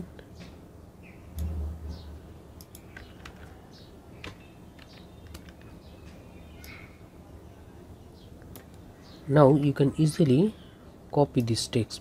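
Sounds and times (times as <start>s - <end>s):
mouse and keyboard clicks: 2.6s - 3.6s, 4.2s - 5.8s.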